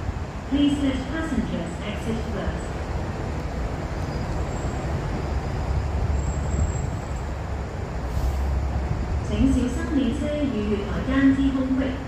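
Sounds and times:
train rumbling into platform: 0.0 - 12.0
faint high squeal: 4.0 - 7.0.

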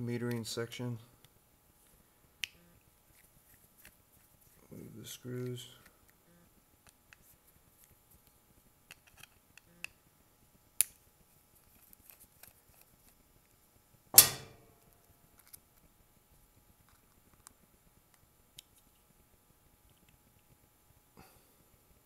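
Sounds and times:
loud metallic clank with ringing: 14.2 - 14.7.

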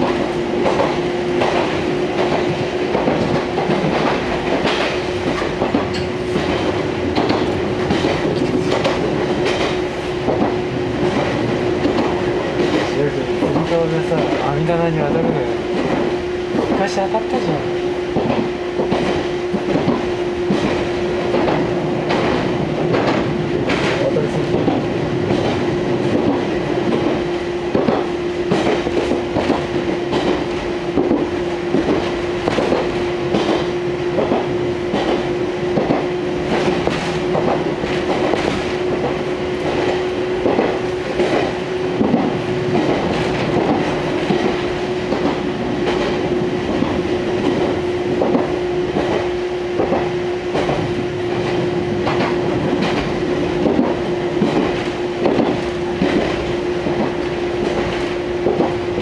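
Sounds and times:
wheels clacking over rail joints: 0.0 - 17.5, 18.1 - 59.0
train hum from inside: 0.0 - 59.0.

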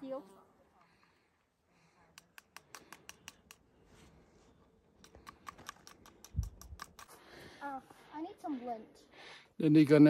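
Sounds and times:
flint and steel clicks: 2.1 - 3.7, 5.0 - 7.2.

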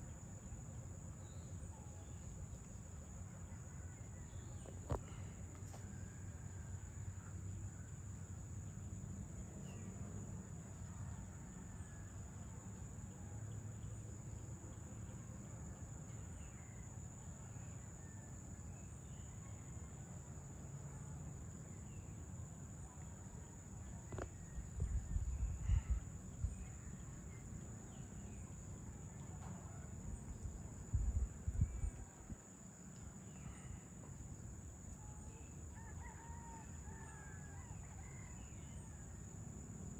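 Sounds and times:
crickets and insects droning: 0.0 - 39.9
rooster crowing: 35.7 - 38.9.

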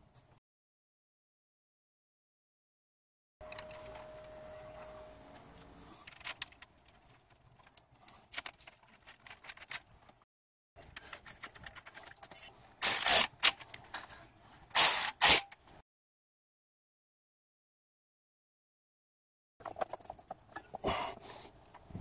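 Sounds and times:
cordless ratchet bursts: 12.8 - 13.6, 14.8 - 15.6.

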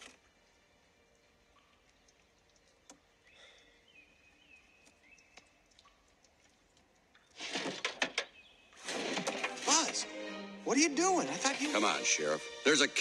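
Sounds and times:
soft ticks: 4.8 - 7.3.

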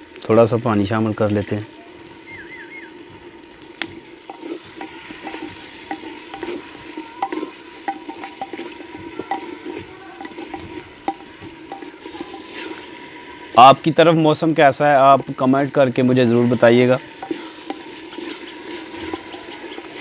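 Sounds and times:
food sizzling: 0.0 - 20.0
wooden spatula scraping a clay pot: 3.8 - 13.1, 17.1 - 20.0.

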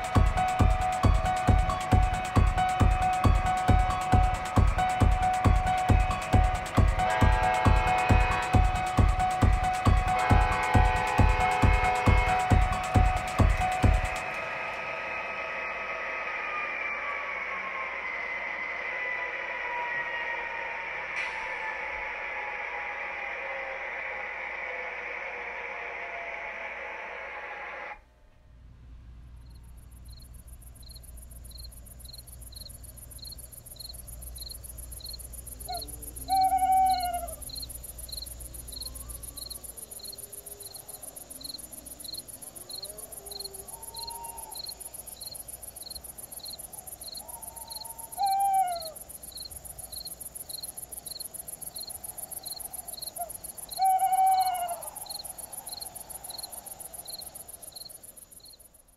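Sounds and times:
high insect trill: 0.0 - 27.0, 29.4 - 58.9
crickets chirping: 0.0 - 27.7, 29.3 - 58.9
owl hooting: 34.9 - 50.8, 51.6 - 58.2.

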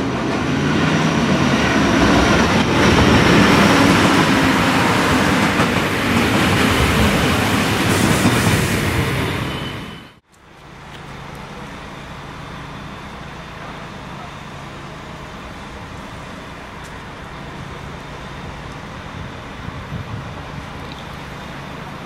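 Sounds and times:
passing train: 0.0 - 22.0
diesel engines idling: 10.3 - 22.0.

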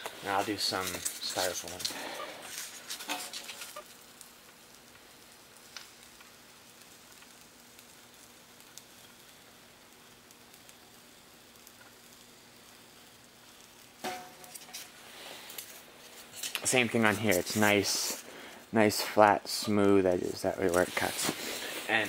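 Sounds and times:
faint steady hiss: 0.0 - 22.0.

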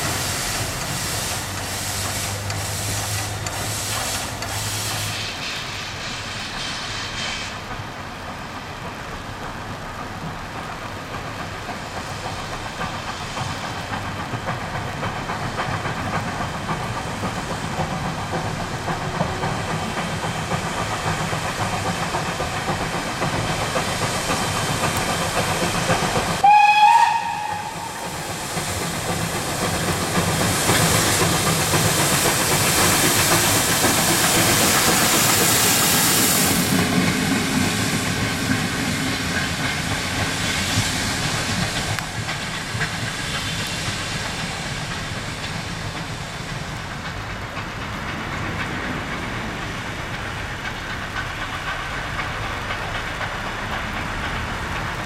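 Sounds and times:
steam locomotive running: 0.0 - 55.0
train whistle blast: 26.4 - 28.3.

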